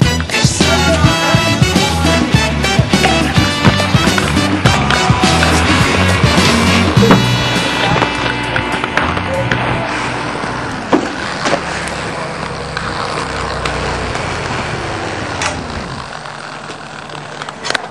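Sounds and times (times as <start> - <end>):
background music: 0.0 - 10.9
inline skate wheels rolling on concrete: 0.0 - 17.9.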